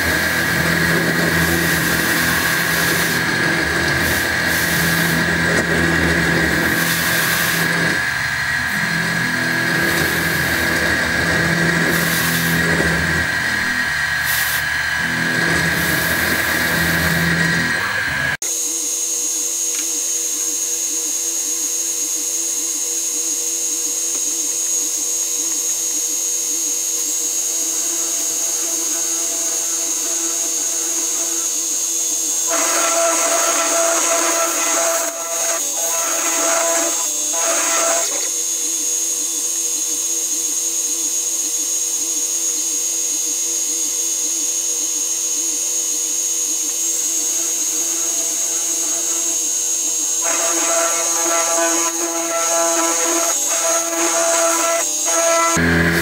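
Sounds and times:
mill spindle whining: 0.0 - 18.4, 32.4 - 38.4, 47.0 - 56.0.

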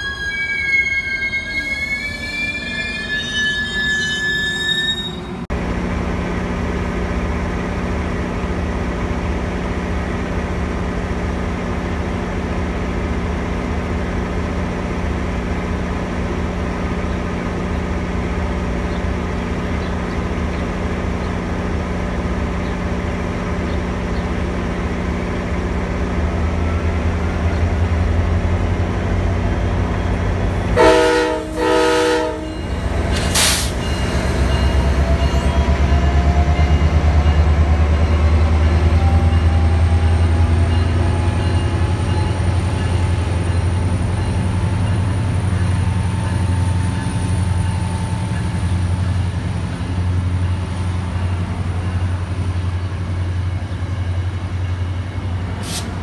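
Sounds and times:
diesel locomotive engine rumble: 0.0 - 56.0
train horn blasts: 30.7 - 33.7.

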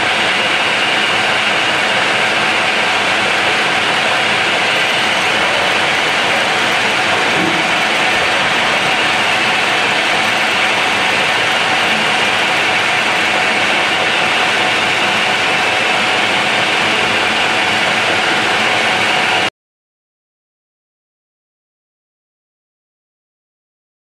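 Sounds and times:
metal lathe running: 0.0 - 19.5.

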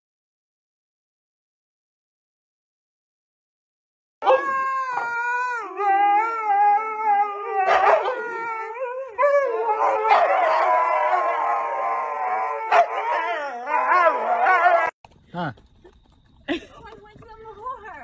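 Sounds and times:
huskies howling: 4.2 - 15.0.

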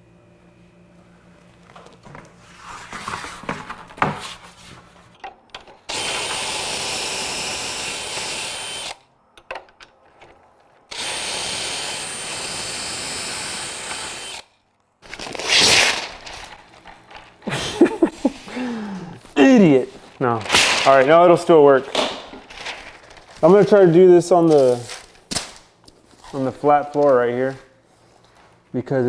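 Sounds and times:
knocks and wood handling: 3.1 - 4.3, 21.8 - 23.2
cordless drill motor whining: 5.9 - 9.0, 10.9 - 14.5.

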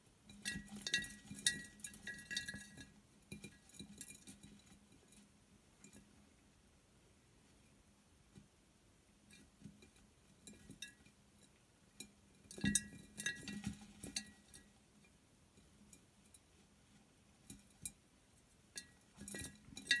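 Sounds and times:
mice scrabbling in glass jar: 0.2 - 6.1, 9.3 - 16.6, 18.7 - 20.0.

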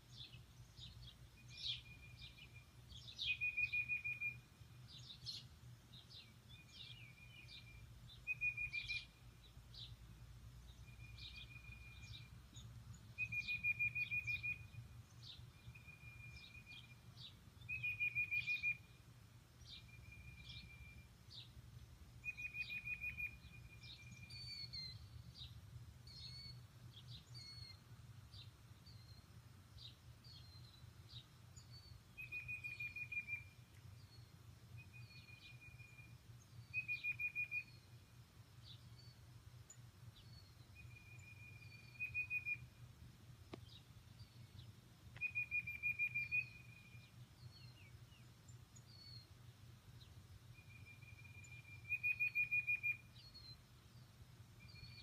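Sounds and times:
high bird chirps: 40.2 - 42.7, 45.1 - 47.8, 50.6 - 53.5
short whistled bird notes: 45.2 - 47.9.

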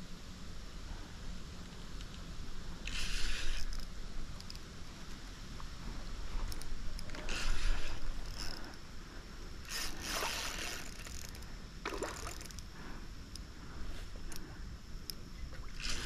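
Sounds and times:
fish splashing in river: 11.9 - 12.6.

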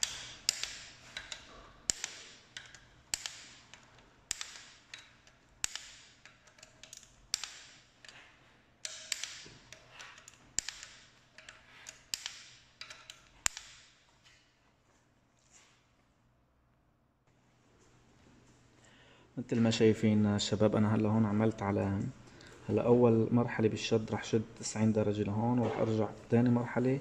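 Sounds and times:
torque wrench clicking: 0.0 - 13.9
ratchet rattle: 0.0 - 14.0.

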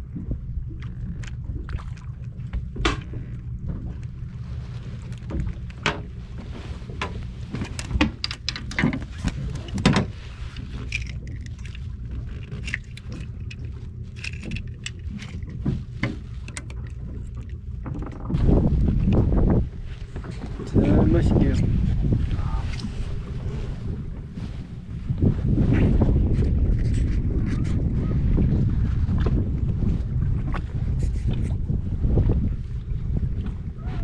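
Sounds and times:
boat engine idling: 0.0 - 25.5.

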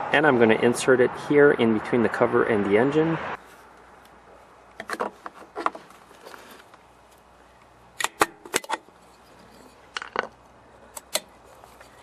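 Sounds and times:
metal cover clicking and knocking: 8.0 - 8.8.

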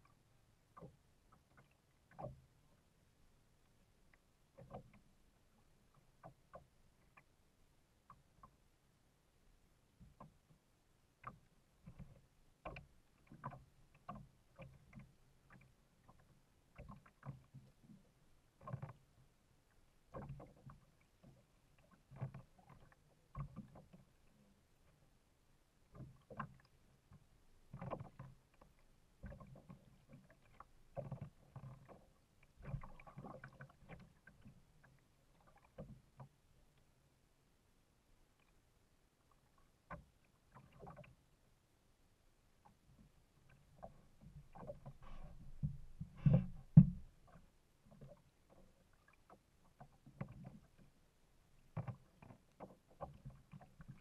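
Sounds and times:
faint water splashes: 0.0 - 54.0
soft knocks against kayak hull: 43.8 - 47.5.

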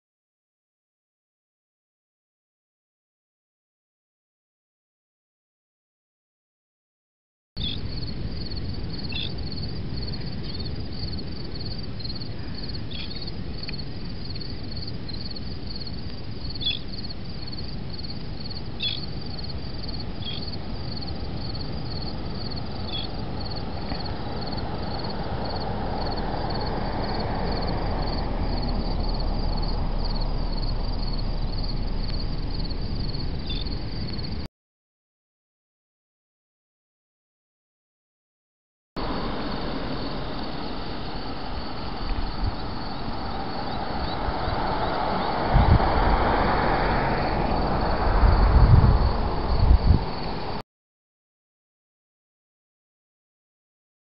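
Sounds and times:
insects trilling: 7.6 - 34.4, 39.0 - 50.6
low outdoor rumble: 7.6 - 34.5, 39.0 - 50.6.

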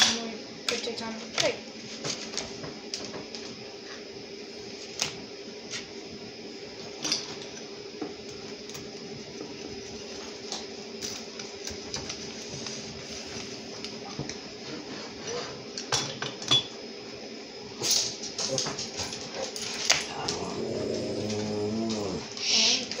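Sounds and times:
steady background hum: 0.0 - 23.0
pizza cutter rolling on cutting board: 20.1 - 22.3.

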